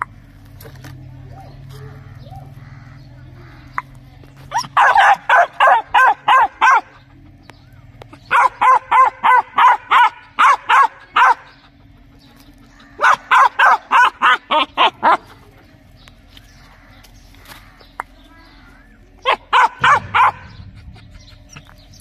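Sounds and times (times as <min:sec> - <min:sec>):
dog barking: 0:01.3 - 0:02.6, 0:04.5 - 0:07.0, 0:08.3 - 0:11.5, 0:13.0 - 0:15.3, 0:19.2 - 0:20.6.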